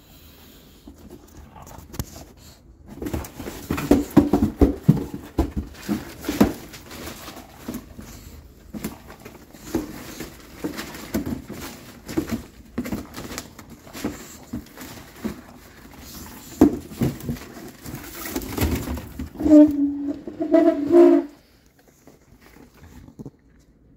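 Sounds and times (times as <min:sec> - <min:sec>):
newspaper rustling: 0:02.9 - 0:19.3
cardboard scraping and knocking: 0:02.9 - 0:21.3.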